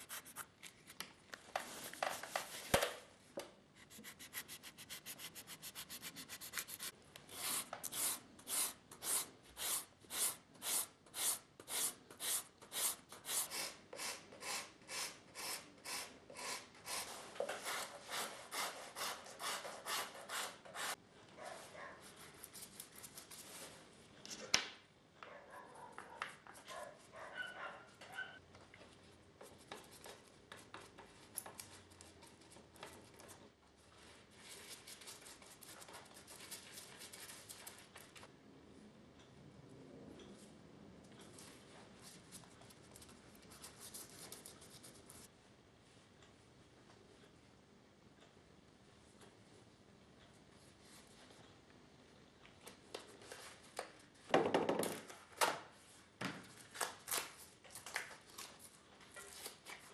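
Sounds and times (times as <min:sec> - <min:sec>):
handling and rubbing sounds: 0:00.0 - 0:02.8, 0:03.8 - 0:08.2.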